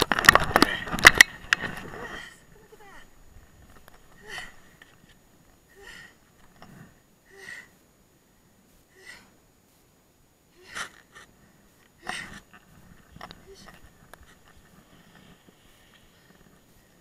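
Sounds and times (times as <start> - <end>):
person gasping for breath: 8.9 - 9.4.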